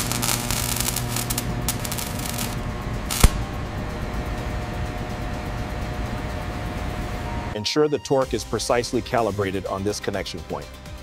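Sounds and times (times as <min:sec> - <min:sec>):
crackling: 0:00.0 - 0:07.6
industrial machinery hum: 0:00.0 - 0:07.6.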